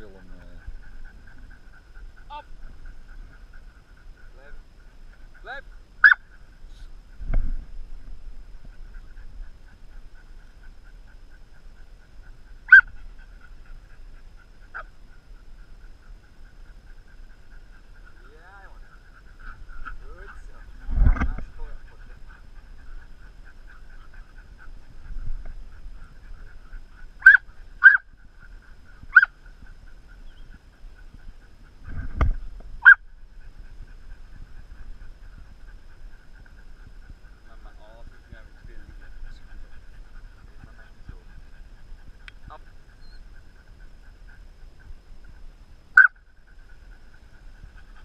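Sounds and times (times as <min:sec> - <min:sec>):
faint rhythmic chirping: 0:00.0 - 0:48.0
dog whining and yelping: 0:00.2 - 0:06.4, 0:12.6 - 0:13.5, 0:21.4 - 0:31.5, 0:32.8 - 0:45.4
dog barking: 0:06.0 - 0:06.4, 0:12.7 - 0:13.0, 0:27.2 - 0:28.0, 0:29.1 - 0:29.3, 0:32.8 - 0:33.0, 0:45.9 - 0:46.2.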